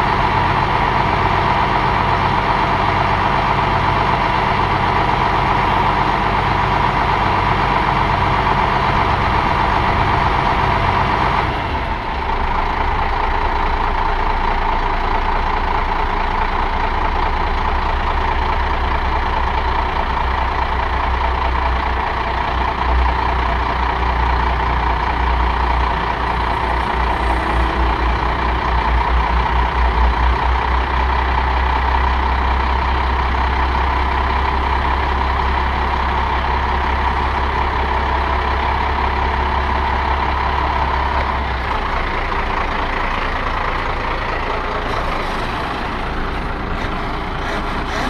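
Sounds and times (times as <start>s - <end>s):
diesel truck engine running: 0.0s - 48.0s
deep pulsing: 25.4s - 31.2s
steady higher hum: 26.1s - 30.0s.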